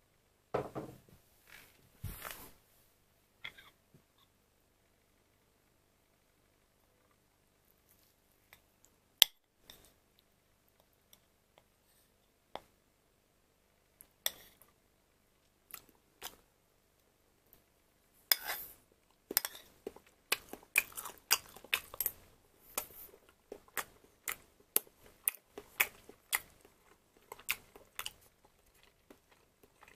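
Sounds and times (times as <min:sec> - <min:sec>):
person chewing with mouth clicks: 0:19.3 - 0:29.9.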